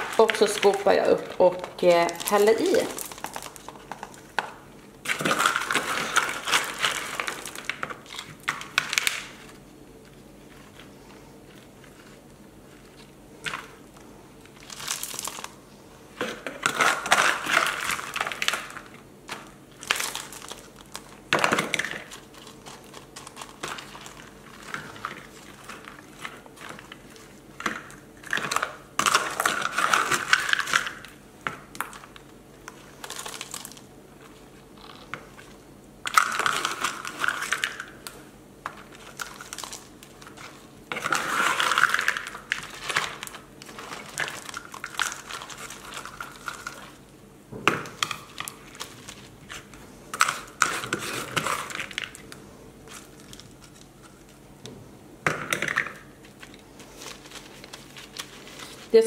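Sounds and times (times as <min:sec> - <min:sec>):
clay pebbles rattling: 0:00.0 - 0:04.2
scoop digging potting mix: 0:00.0 - 0:09.6.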